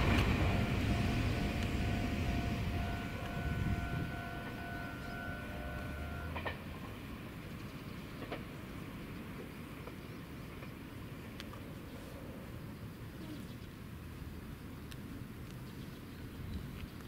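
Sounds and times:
steady high tone: 0.0 - 6.4
electric train rumbling: 0.0 - 13.1.

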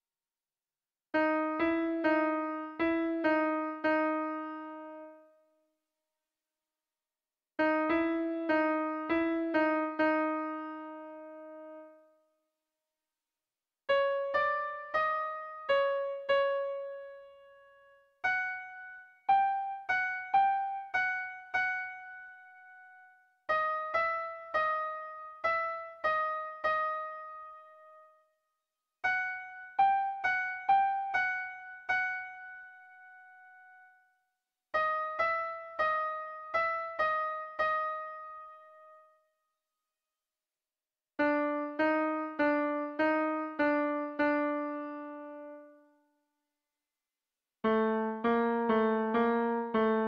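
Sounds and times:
keyboard music phrases: 1.2 - 5.5, 7.6 - 12.2, 13.9 - 28.2, 29.0 - 33.8, 34.8 - 39.1, 41.2 - 46.0, 47.6 - 50.0.

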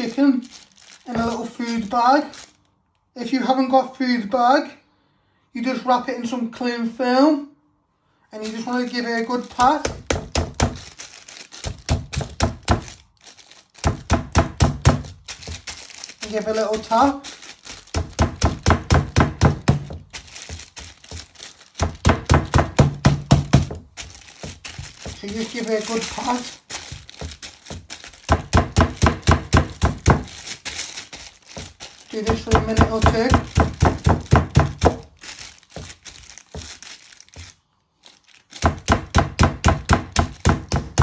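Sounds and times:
mallet pounding meat in plastic bag: 0.0 - 2.5, 8.4 - 41.0
meat mallet pounding on wooden board: 9.6 - 10.8, 11.6 - 12.9, 13.8 - 15.2, 17.9 - 20.1, 21.8 - 23.9, 27.2 - 30.3, 31.6 - 35.1, 38.6 - 41.0.

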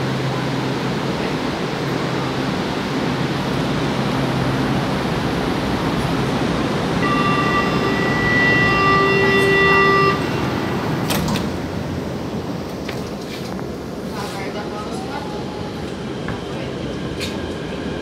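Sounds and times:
metro train rushing: 0.0 - 18.0
train horn steady tone: 6.9 - 11.2.

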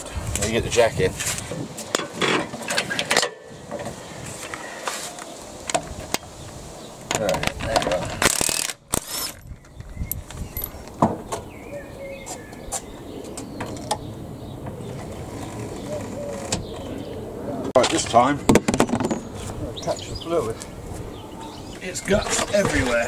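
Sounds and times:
impact wrench burst: 8.2 - 9.4.

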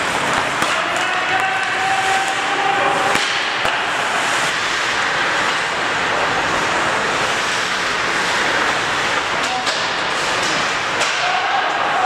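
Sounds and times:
skates scraping ice: 0.0 - 12.0
sharp crack: 0.1 - 5.7, 9.1 - 11.8.

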